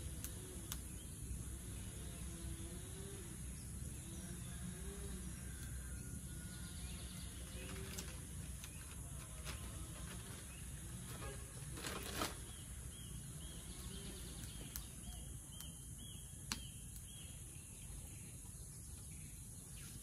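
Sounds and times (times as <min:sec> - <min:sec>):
insect drone: 0:00.0 - 0:20.0
plastic bag crinkling: 0:07.6 - 0:12.6.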